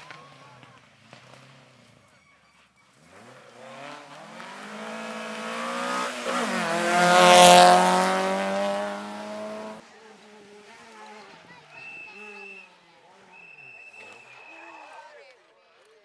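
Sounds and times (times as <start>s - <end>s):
rally car engine passing by: 2.8s - 14.5s.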